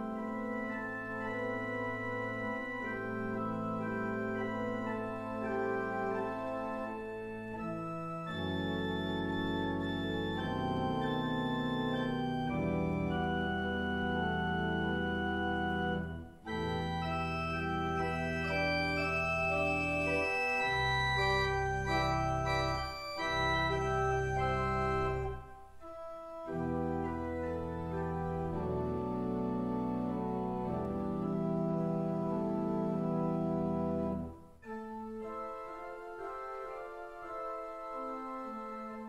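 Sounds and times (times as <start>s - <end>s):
church organ playing a hymn: 0.0s - 39.0s.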